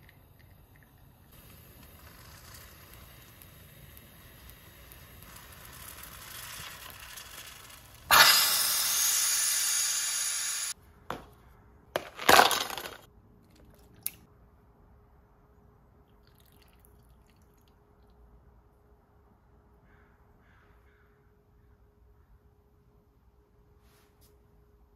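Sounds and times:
espresso maker hissing: 1.3 - 10.8.

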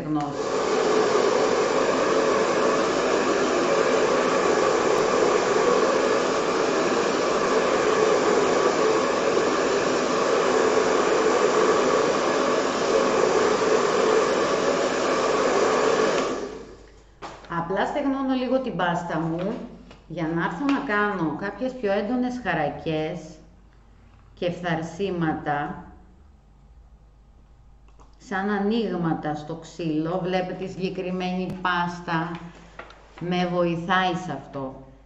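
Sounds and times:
heat gun blowing: 0.2 - 17.4.

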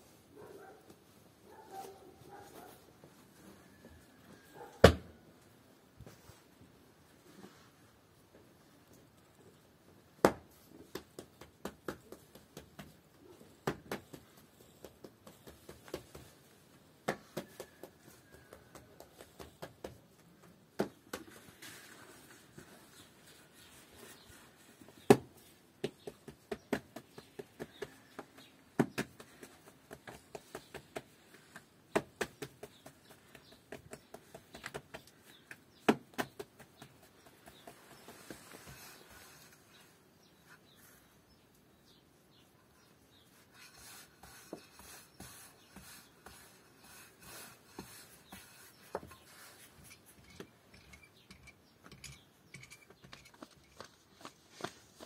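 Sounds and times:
sharp knocks and taps: 10.2 - 21.4.

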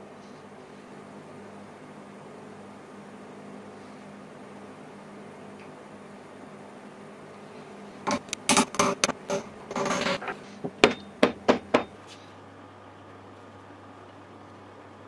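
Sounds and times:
wooden wedge knocks: 8.1 - 11.9.

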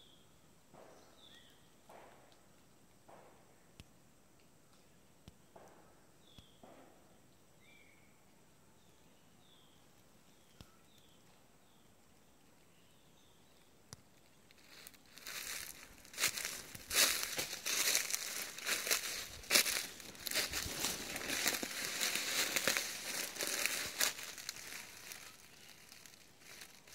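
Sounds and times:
faint high chirps: 9.0 - 11.4
footsteps crunching dry leaves: 14.5 - 26.9.

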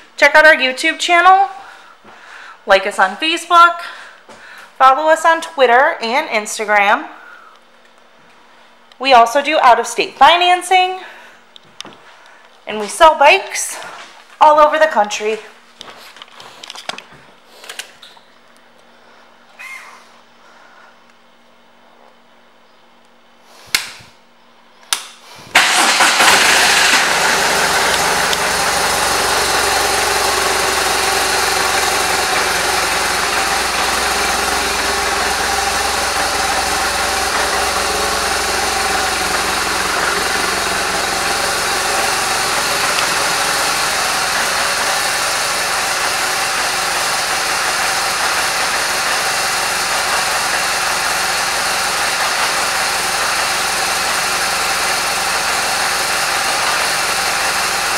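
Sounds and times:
motorcycle engine starting and idling: 25.5 - 57.9.

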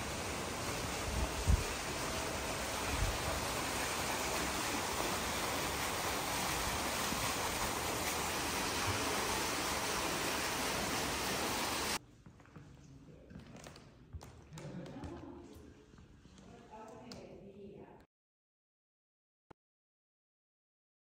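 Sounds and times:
fountain jets splashing into pool: 0.0 - 12.0.

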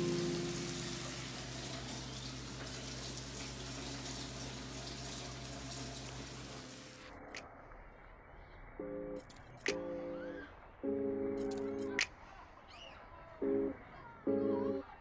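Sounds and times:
sustained musical tone: 0.0 - 1.6.

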